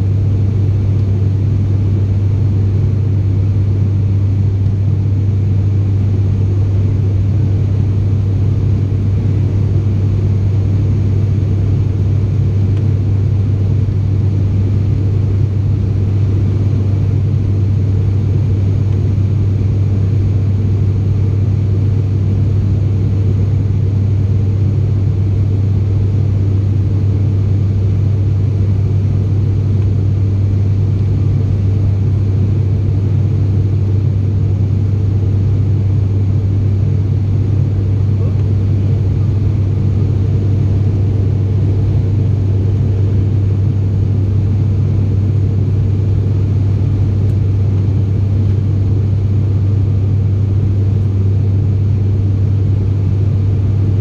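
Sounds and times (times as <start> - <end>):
turboprop cabin drone: 0.0 - 54.0.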